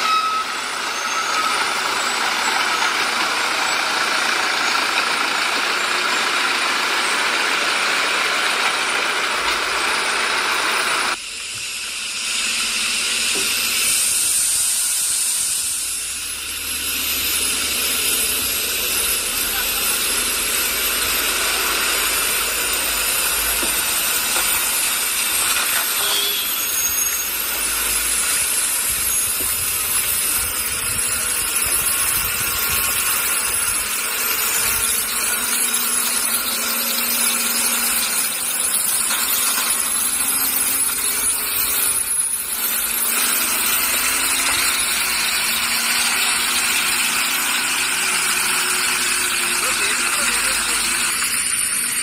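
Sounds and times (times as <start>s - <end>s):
lorry diesel engine labouring: 0.0s - 52.0s
steady hiss: 11.2s - 19.9s.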